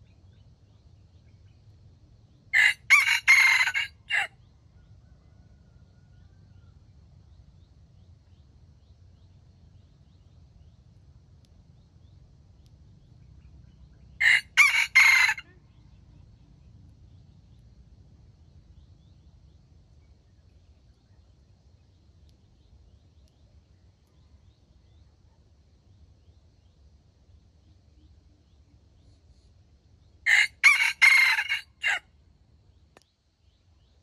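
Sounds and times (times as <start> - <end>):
faint low rumble: 0.0 - 3.4, 4.0 - 30.3
rooster crowing: 2.5 - 6.6, 14.2 - 15.6, 30.2 - 32.1.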